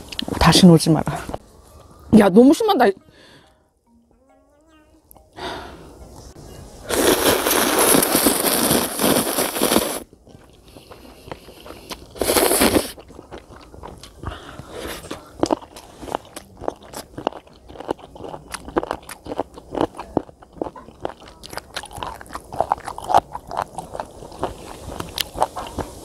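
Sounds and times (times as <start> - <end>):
crunchy chewing: 6.9 - 26.0
noodles slurped: 6.9 - 26.0.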